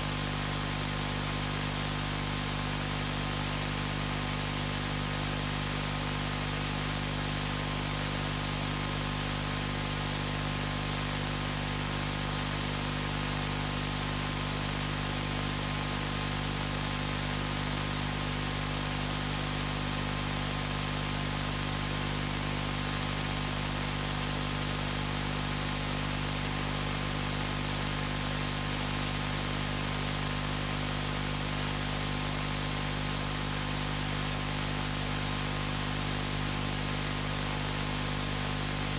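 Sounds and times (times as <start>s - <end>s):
static hiss: 31.4s - 34.7s
low electrical hum: 32.2s - 33.9s.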